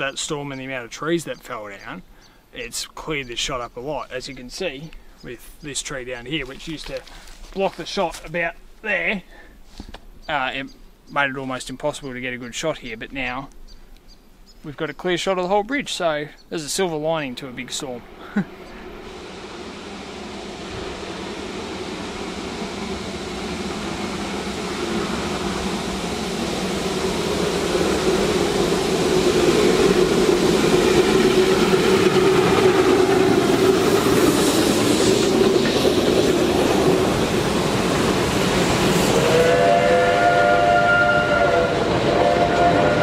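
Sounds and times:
steam train running: 0:00.0 - 0:09.8, 0:15.2 - 0:43.0
steam whistle: 0:18.7 - 0:35.4, 0:36.8 - 0:43.0.

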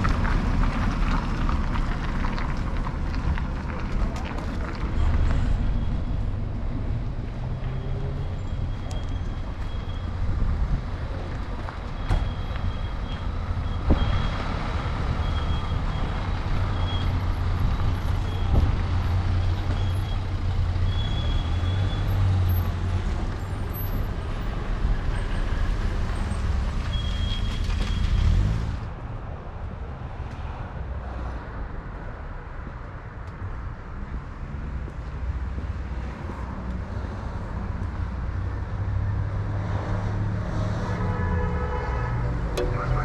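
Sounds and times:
motor vehicle rumble: 0:00.0 - 0:30.4, 0:42.3 - 0:43.0
short high-pitched tones: 0:42.6 - 0:43.0.

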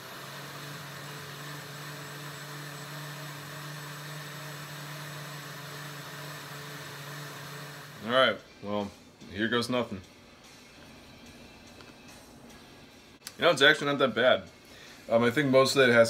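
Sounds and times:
blender motor humming: 0:00.0 - 0:08.3.

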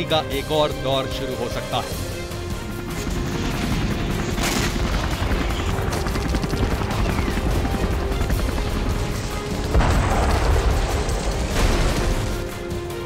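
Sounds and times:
dramatic background music: 0:00.0 - 0:13.0
helicopter rotor running: 0:01.9 - 0:13.0
rapid automatic gunfire: 0:03.0 - 0:12.4.

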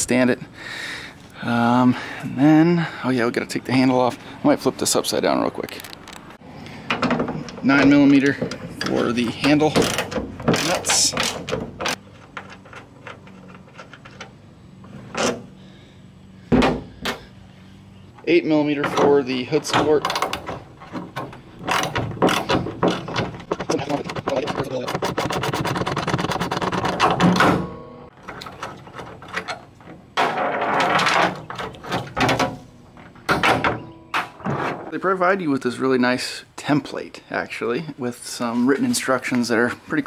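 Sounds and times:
metal clanks and rattles: 0:06.7 - 0:15.8, 0:18.1 - 0:35.0.

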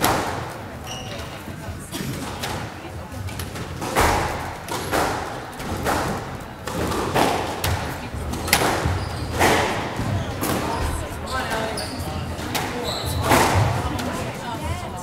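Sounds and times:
squash ball bouncing on wooden floor: 0:03.3 - 0:14.1.

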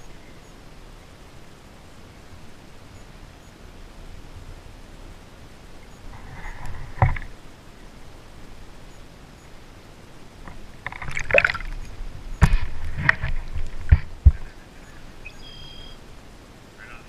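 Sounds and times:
water splashing and dripping: 0:10.4 - 0:14.4.

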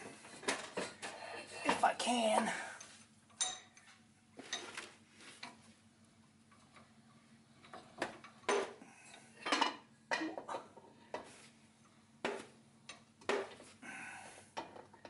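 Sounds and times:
faint steady hum: 0:00.0 - 0:15.0
metal tools clinking: 0:03.4 - 0:03.8.

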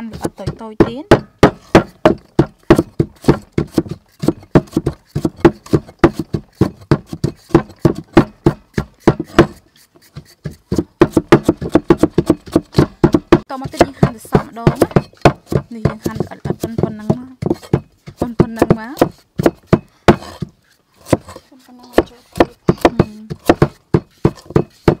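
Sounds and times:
cleaver chopping on wooden block: 0:00.0 - 0:25.0.

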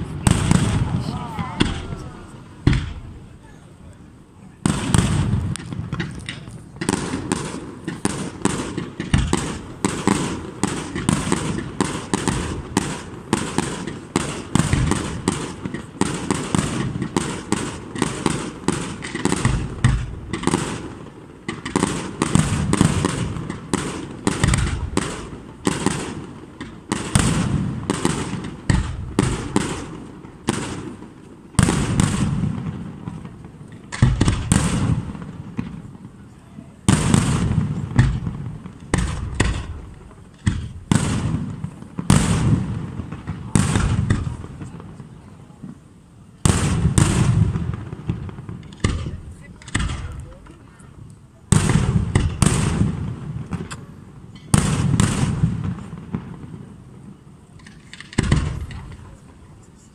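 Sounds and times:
rumbling echo: 0:00.0 - 0:03.4
fireworks bursting: 0:00.0 - 0:59.9.

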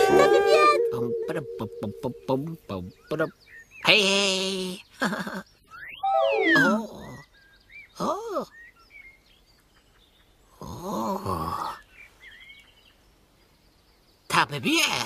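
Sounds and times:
small birds chirping: 0:00.0 - 0:15.0
character voice making wordless sounds: 0:06.0 - 0:07.2.

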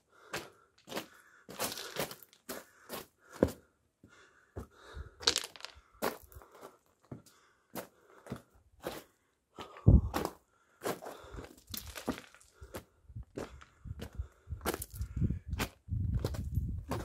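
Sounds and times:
footsteps crunching on gravel: 0:00.9 - 0:02.6, 0:10.9 - 0:12.8.

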